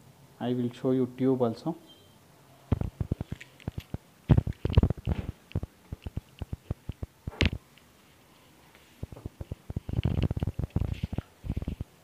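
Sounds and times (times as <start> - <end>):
hard objects clicking and knocking: 2.7 - 7.6, 9.0 - 12.0.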